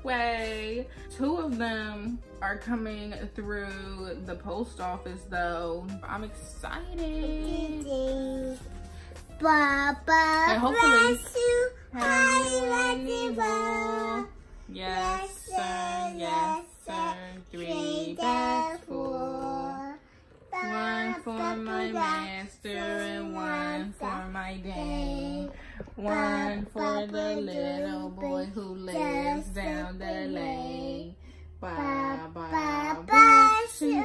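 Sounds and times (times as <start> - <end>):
person singing unaccompanied: 9.4 - 14.3, 15.0 - 31.0.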